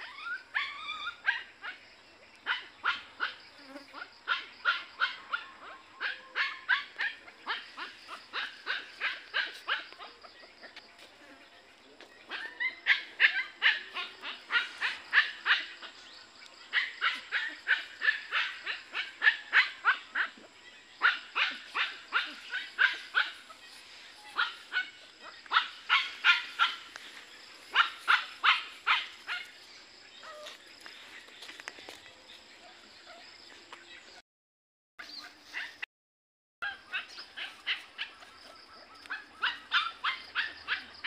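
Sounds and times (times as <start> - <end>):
dog yapping: 4.3 - 10.2, 12.3 - 15.8, 16.7 - 20.4, 21.0 - 23.6, 24.2 - 26.9, 27.7 - 29.5, 39.0 - 41.0.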